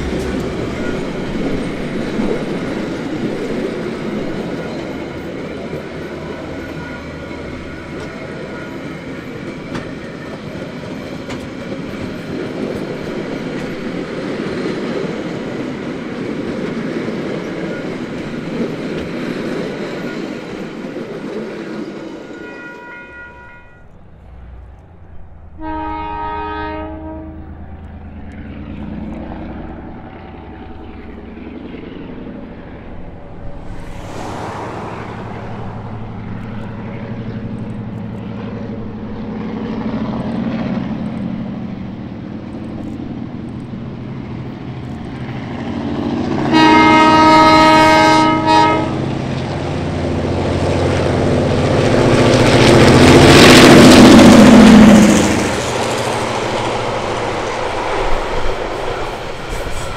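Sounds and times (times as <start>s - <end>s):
diesel locomotive engine and wheels: 0.0s - 59.9s
train air horn: 22.4s - 24.0s, 25.6s - 27.6s, 46.4s - 49.2s.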